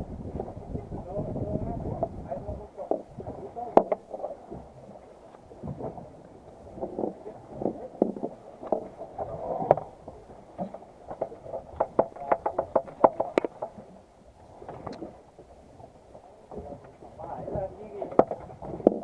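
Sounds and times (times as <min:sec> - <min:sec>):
knocks and taps on boat deck: 0:03.7 - 0:04.7, 0:10.6 - 0:13.9, 0:18.0 - 0:19.0.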